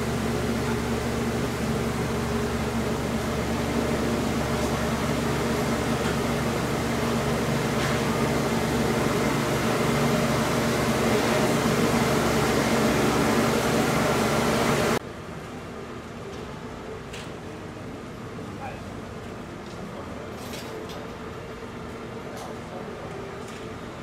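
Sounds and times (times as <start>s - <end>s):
fan hum and rush: 0.0s - 24.0s
open-air background: 0.0s - 24.0s.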